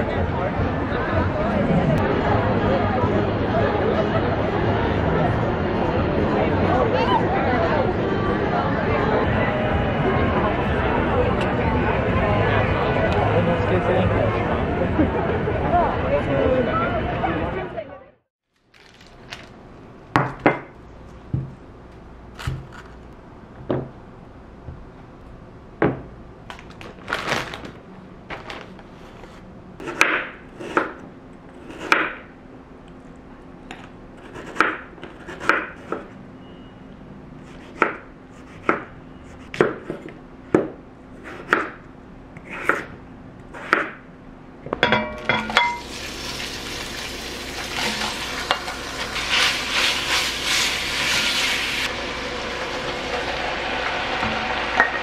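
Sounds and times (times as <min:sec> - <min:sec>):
knife chopping on wooden board: 0:34.2 - 0:36.0, 0:39.5 - 0:41.8
meat sizzling in a pot: 0:45.7 - 0:55.0.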